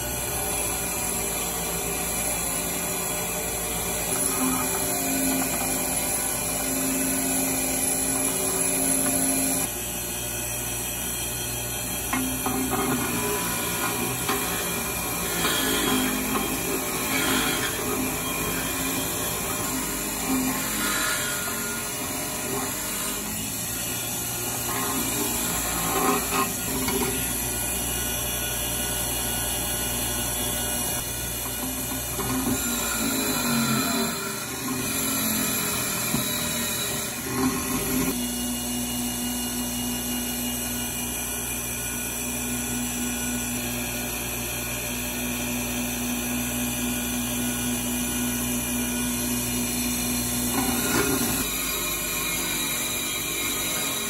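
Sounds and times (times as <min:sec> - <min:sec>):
bench grinder motor hum: 0:00.0 - 0:54.0
wire wheel scratching metal: 0:04.0 - 0:09.7, 0:12.0 - 0:28.0, 0:30.8 - 0:38.2, 0:50.5 - 0:54.0.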